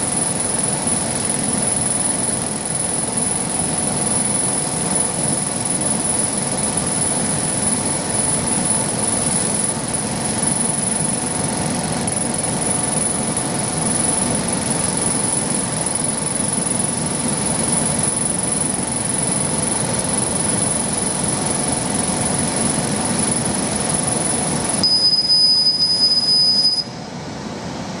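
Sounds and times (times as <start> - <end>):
laser machine rushing noise: 0.0 - 26.9
lower steady tone: 0.0 - 27.0
high-pitched whine: 0.0 - 28.0.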